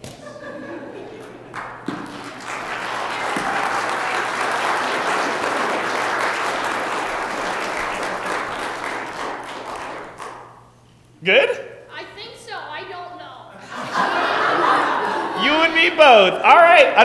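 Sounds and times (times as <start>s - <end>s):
crowd applauding: 1.1s - 10.6s.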